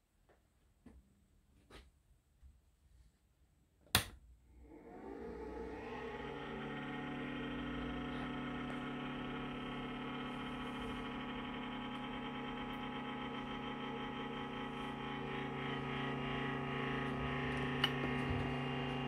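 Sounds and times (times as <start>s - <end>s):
electrical hum and whine: 4.7s - 19.0s.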